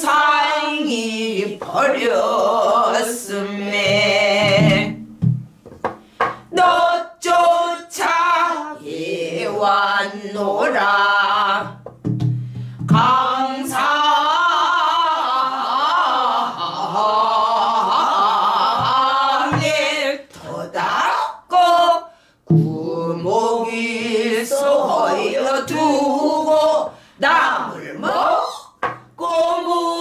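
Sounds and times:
woman singing with vibrato: 0.0s - 5.0s, 6.2s - 11.8s, 12.9s - 30.0s
barrel drum struck with stick: 3.9s - 6.4s, 11.9s - 13.1s, 22.5s - 22.8s.

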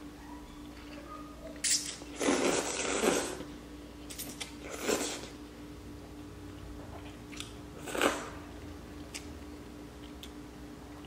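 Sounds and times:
noodles being slurped: 2.1s - 3.5s, 4.6s - 5.4s.

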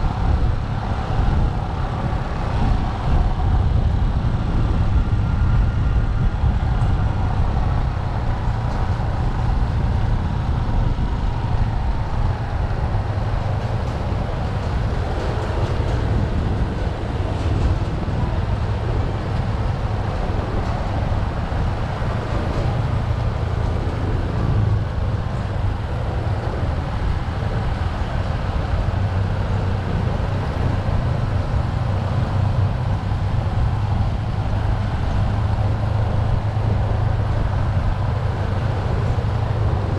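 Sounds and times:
road noise: 0.0s - 39.9s.

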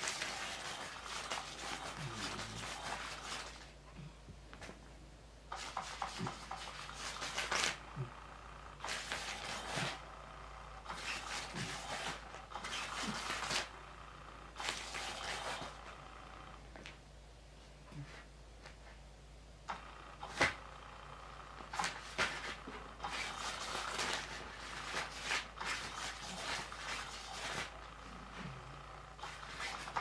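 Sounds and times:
cat scratching crinkly mat: 0.0s - 3.7s, 5.5s - 7.8s, 8.8s - 10.1s, 10.8s - 13.7s, 14.6s - 16.2s, 19.8s - 20.7s, 21.7s - 28.0s, 29.2s - 30.0s.

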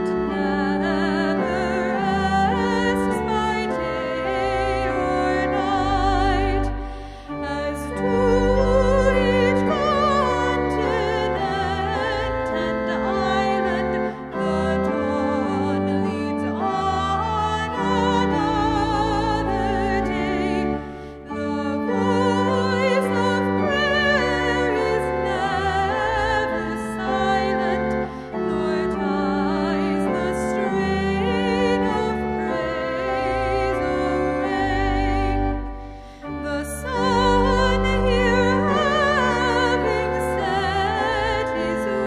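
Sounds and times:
sustained instrumental accompaniment: 0.0s - 42.0s
woman singing with vibrato: 0.0s - 42.0s.

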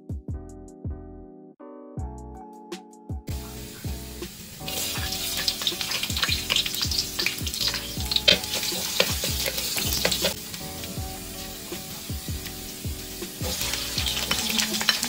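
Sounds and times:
garlic sizzling in a hot wok: 3.3s - 15.0s
wooden spoon scraping a pan: 4.7s - 12.7s.

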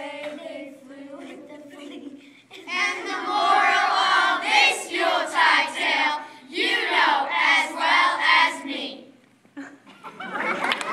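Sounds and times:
children singing: 0.0s - 2.0s, 2.6s - 8.8s.

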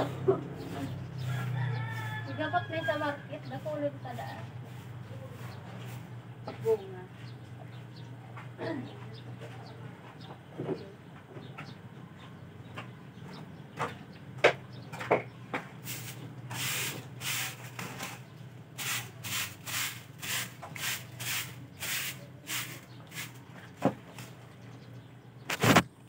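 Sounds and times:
broom sweeping wet ground: 3.5s - 6.1s, 15.8s - 18.2s, 18.8s - 24.4s.

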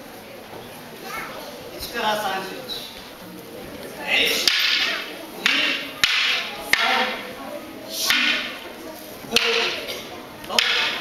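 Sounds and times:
wooden staffs clacking: 4.2s - 7.3s, 8.0s - 11.0s
staffs whooshing: 4.3s - 7.2s, 8.0s - 8.6s, 9.3s - 9.9s.

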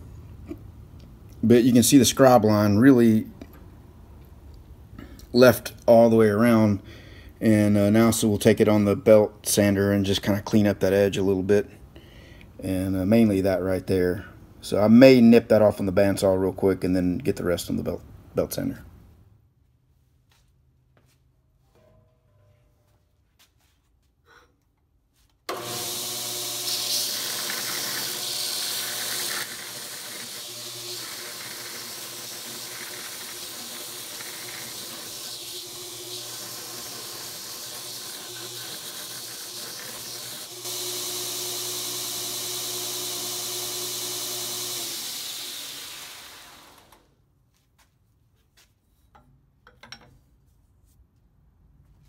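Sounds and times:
belt sander grinding steel: 25.5s - 47.0s.

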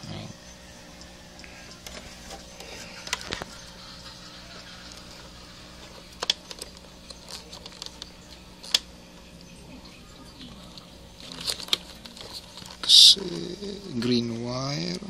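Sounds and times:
faint steady hum: 0.0s - 15.0s
plastic clicks and rustles: 6.1s - 8.9s, 10.4s - 12.8s.

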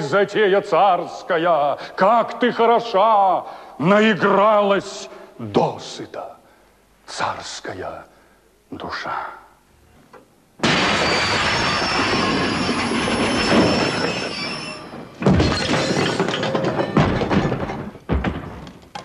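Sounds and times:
tram wheels screeching: 10.8s - 17.0s
rapid clattering knocks: 11.4s - 19.0s.

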